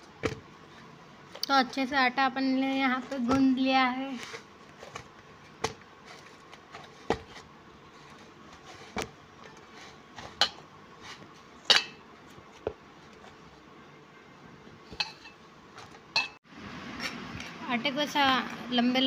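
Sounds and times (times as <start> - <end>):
dough kneaded by hand: 0.0 - 13.7
metal plate knocking and clinking: 11.7 - 12.0.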